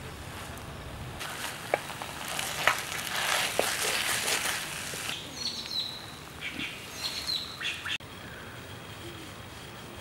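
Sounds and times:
food sizzling in clay pot: 0:01.2 - 0:05.2
small birds chirping: 0:03.8 - 0:09.4.

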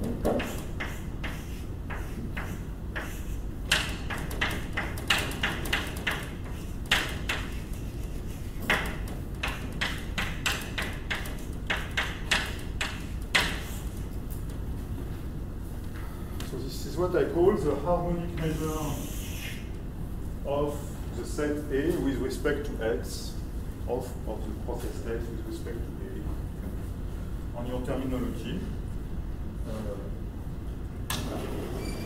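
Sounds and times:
chalk tapping and scraping: 0:00.0 - 0:14.6, 0:18.3 - 0:19.6
low room hum: 0:00.0 - 0:32.0.

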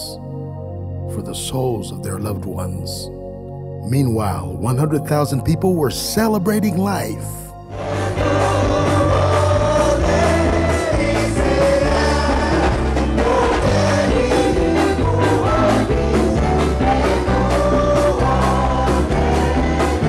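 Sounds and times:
gospel singers: 0:06.3 - 0:20.0.

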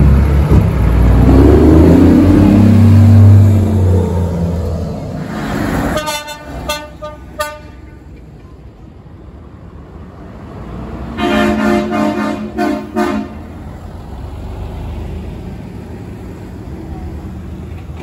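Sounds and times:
truck engines rumbling: 0:00.0 - 0:18.0
truck air horns: 0:05.4 - 0:08.1, 0:11.2 - 0:13.6.

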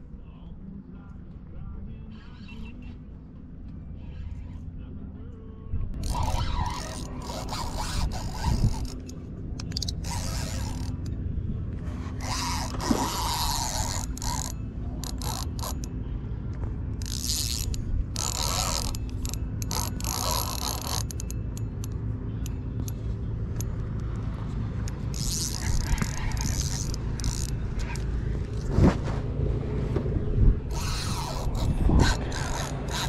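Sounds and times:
low hum: 0:00.0 - 0:33.0
fishing reel gears whirring: 0:06.0 - 0:11.2, 0:11.9 - 0:16.0, 0:16.9 - 0:28.7, 0:30.6 - 0:33.0.

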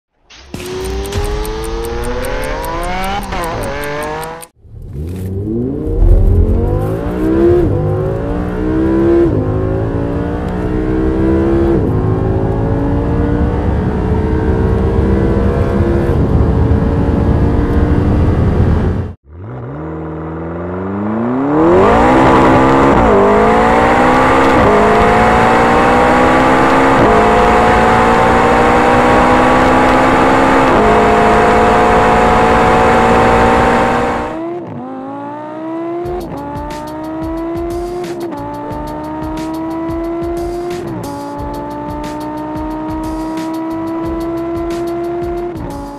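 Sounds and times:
car engine pulling through gears: 0:00.2 - 0:45.9
intro sound: 0:00.3 - 0:04.5, 0:05.4 - 0:09.1
car engine accelerating hard: 0:00.6 - 0:45.9.

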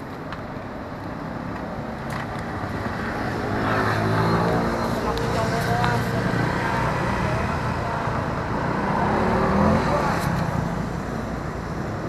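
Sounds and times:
traffic hum: 0:00.0 - 0:12.0
vehicle engine approaching: 0:02.7 - 0:11.2.

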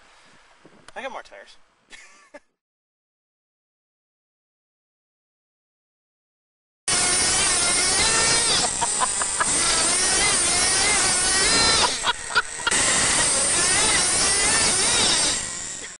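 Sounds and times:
rc truck engine revving: 0:06.9 - 0:16.0.

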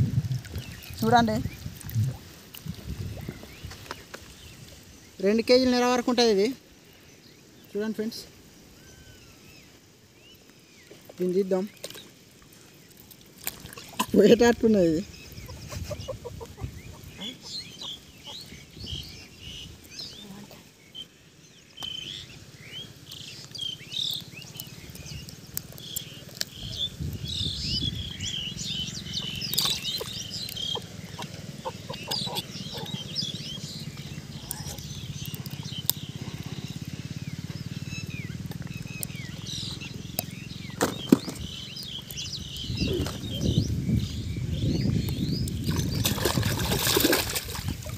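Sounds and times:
water splashing and dripping: 0:00.0 - 0:04.8, 0:11.0 - 0:14.8, 0:29.0 - 0:33.1, 0:45.4 - 0:47.9
birds chirping: 0:00.0 - 0:47.9.

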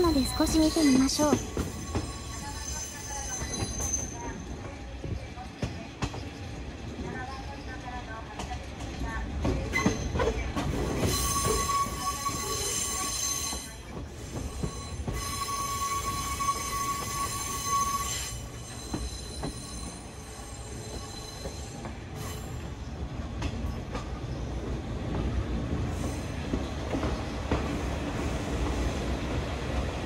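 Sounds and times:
train wheels squealing: 0:00.0 - 0:06.6, 0:09.7 - 0:22.9, 0:25.9 - 0:27.9
low rumble of wheels on rails: 0:00.0 - 0:30.0.

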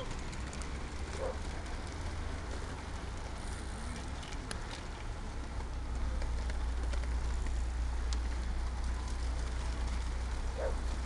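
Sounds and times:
bicycle tyres hissing on tarmac: 0:00.2 - 0:04.2.

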